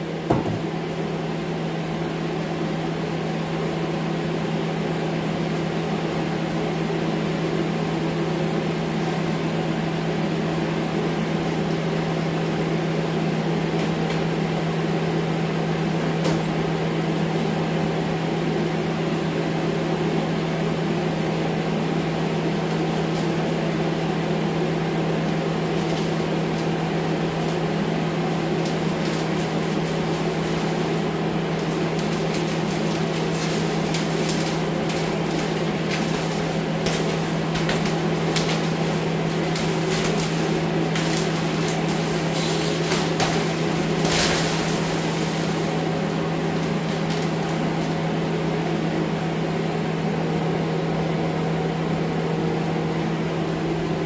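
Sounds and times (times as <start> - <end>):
fan humming with rushing air: 0.0 - 54.0.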